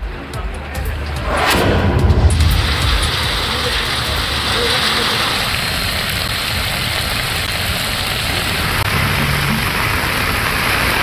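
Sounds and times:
traffic engine hum: 2.1s - 11.0s
heavy rain on pavement: 2.4s - 11.0s.

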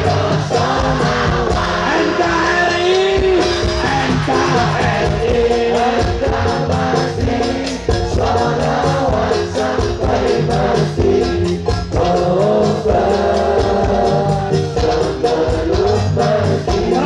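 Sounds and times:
live band devotional music: 0.0s - 17.0s
person singing: 0.0s - 17.0s.

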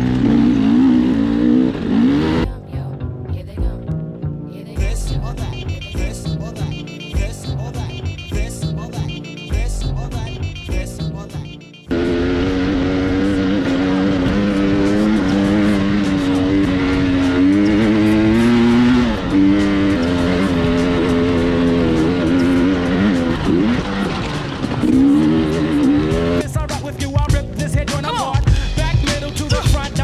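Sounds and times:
dirt bike engine revving: 0.0s - 2.5s, 10.2s - 26.8s
music with a beat: 4.7s - 11.9s, 14.2s - 23.7s, 25.0s - 30.0s.

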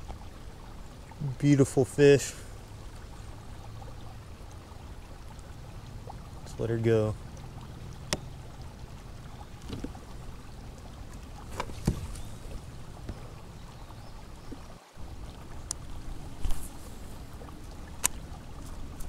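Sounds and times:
water lapping against kayak: 0.0s - 19.0s
steady low rumble: 2.4s - 19.0s.

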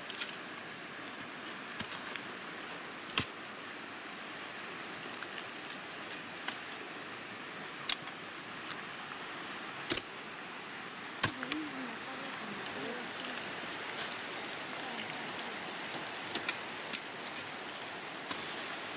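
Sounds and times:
steady background hiss: 0.0s - 18.9s
hoe chopping ground: 3.1s - 3.4s, 9.9s - 10.2s, 11.2s - 11.6s, 15.9s - 17.5s, 18.2s - 18.7s.

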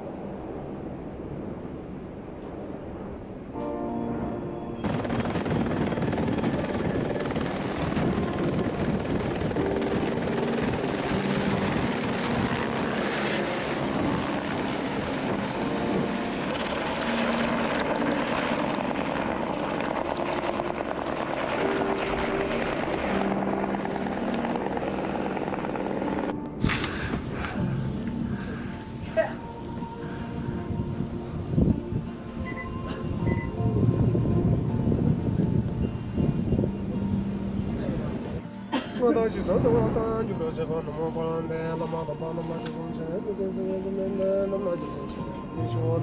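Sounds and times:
helicopter rotor and engine: 4.8s - 27.7s.

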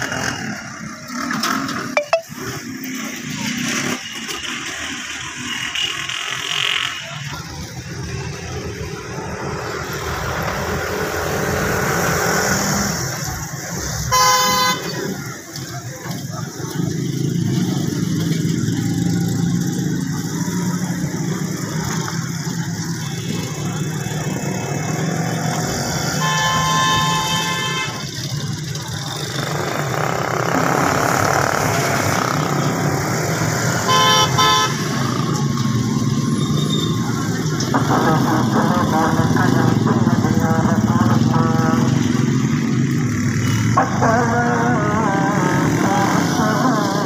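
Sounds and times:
road traffic noise: 0.0s - 47.0s
car horn honking: 14.1s - 15.0s, 26.2s - 28.1s, 33.8s - 35.0s.

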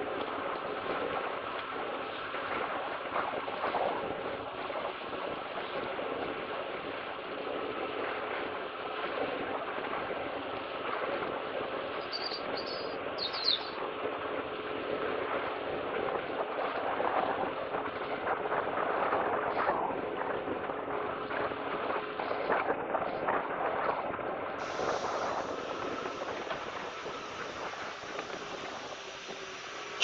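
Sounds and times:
outdoor rumble and hiss: 0.0s - 30.0s
small bird chirping: 12.0s - 13.8s.

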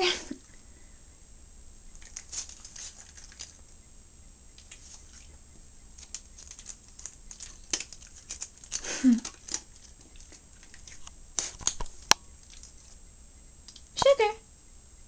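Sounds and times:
dog crunching dry kibble: 2.0s - 3.7s, 6.0s - 13.0s.

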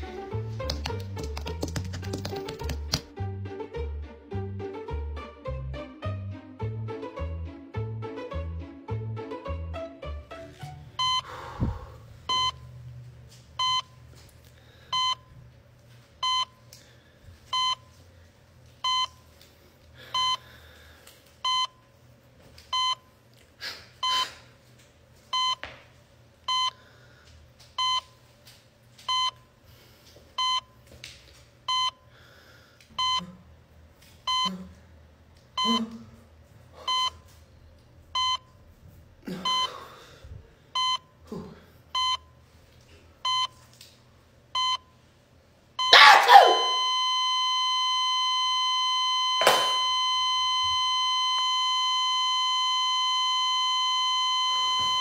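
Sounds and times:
heart monitor beeping: 11.0s - 12.8s, 13.6s - 14.1s, 14.9s - 15.4s, 16.2s - 16.7s, 17.4s - 18.0s, 18.8s - 19.3s, 20.1s - 20.5s, 21.4s - 22.0s, 22.7s - 23.1s, 24.0s - 24.4s, 25.3s - 25.7s, 26.4s - 26.8s, 27.8s - 28.2s, 29.0s - 29.6s, 30.4s - 30.8s, 31.6s - 32.1s, 33.0s - 33.4s, 34.2s - 34.6s, 35.6s - 35.9s, 36.8s - 37.3s, 38.1s - 38.6s, 39.4s - 39.8s, 40.7s - 41.2s, 41.9s - 42.4s, 43.2s - 43.7s, 44.5s - 45.0s, 45.8s - 55.0s.

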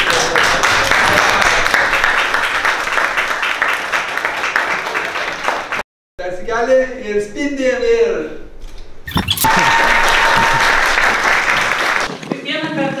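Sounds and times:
crowd applauding: 0.0s - 5.8s, 9.4s - 12.3s.

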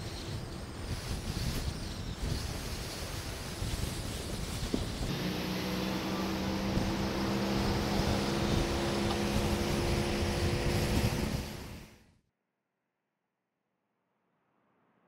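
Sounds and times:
road and wind rumble: 0.0s - 12.0s
car engine hum: 5.1s - 12.0s.

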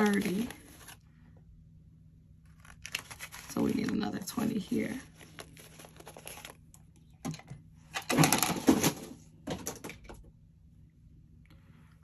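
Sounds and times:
banknotes rustling: 0.0s - 1.0s, 2.5s - 6.8s.

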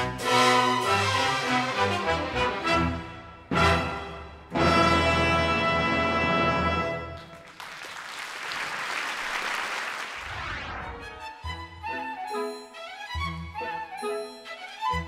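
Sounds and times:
orchestral music: 0.0s - 7.4s, 10.6s - 15.0s
audience applause: 7.0s - 10.8s.

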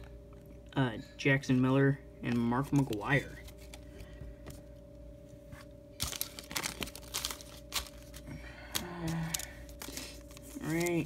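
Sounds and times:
cards being handled: 2.2s - 4.6s, 6.0s - 11.0s
foil wrapper crinkling: 6.0s - 11.0s.

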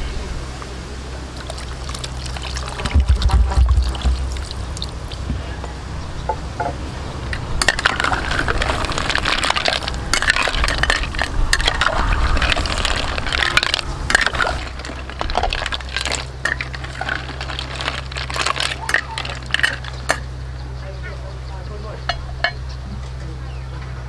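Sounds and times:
snail shells clattering in a pot: 1.4s - 5.2s, 7.3s - 20.3s.

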